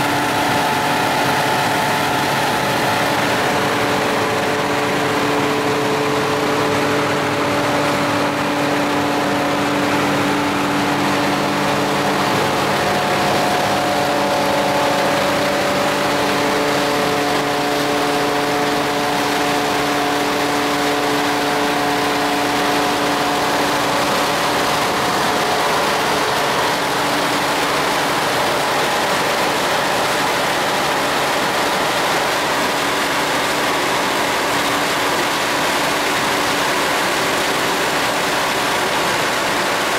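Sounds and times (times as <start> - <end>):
rushing noise: 0.0 - 31.7
machine and fan hum: 0.0 - 39.9.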